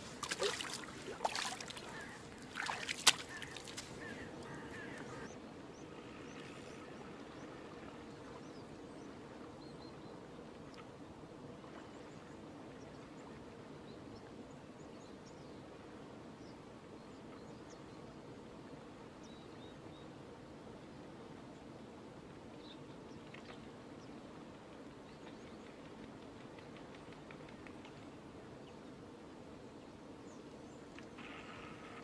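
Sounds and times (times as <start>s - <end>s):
splashing water: 0.0s - 5.2s
faint bird calls: 0.0s - 7.6s.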